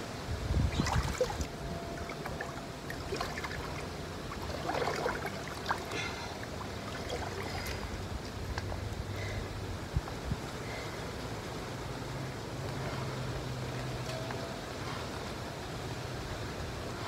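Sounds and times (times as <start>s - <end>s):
loud splashes: 0.7s - 7.8s
water sloshing in a pool: 0.7s - 8.6s.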